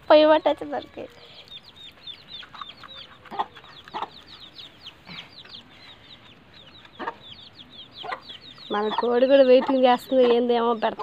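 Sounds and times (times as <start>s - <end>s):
chicks cheeping: 0.1s - 11.0s
hen clucking: 0.1s - 11.0s.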